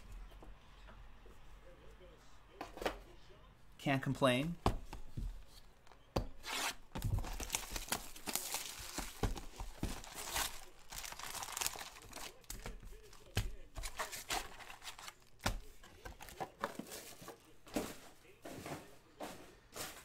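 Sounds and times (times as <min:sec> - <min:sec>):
cardboard box tearing: 0:06.4 - 0:12.6
foil packs crinkling: 0:07.0 - 0:17.4.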